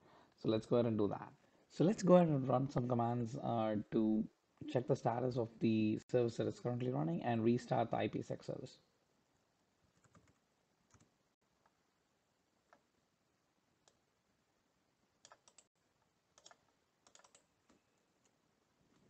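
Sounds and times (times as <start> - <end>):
keyboard and mouse clicks: 10.0 - 11.1, 15.2 - 15.7, 16.3 - 19.0.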